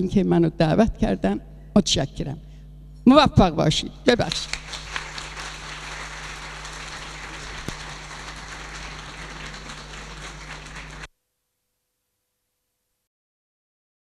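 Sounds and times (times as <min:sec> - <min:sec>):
audience applauding: 0:04.3 - 0:11.1.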